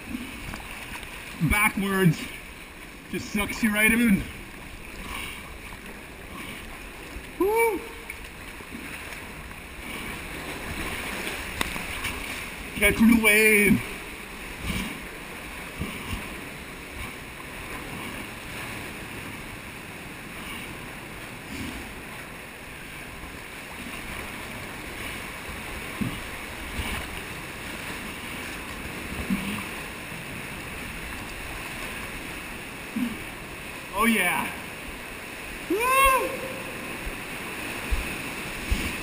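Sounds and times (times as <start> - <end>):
seawater sloshing in a cave: 0.0 - 39.0
water thumps: 25.0 - 29.8.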